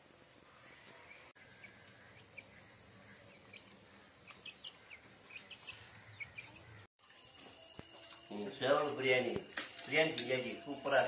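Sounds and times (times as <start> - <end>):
high-pitched insect hum: 6.6 - 11.0.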